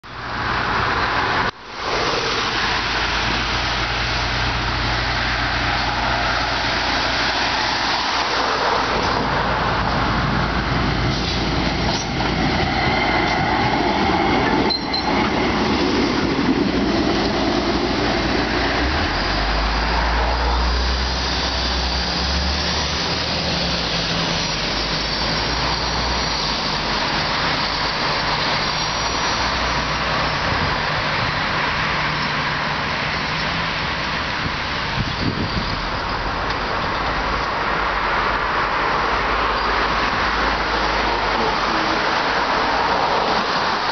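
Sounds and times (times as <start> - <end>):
tram rolling past: 0.0 - 43.9
high wheel squeal: 11.1 - 13.8, 14.4 - 15.4, 17.1 - 30.7, 34.8 - 37.4.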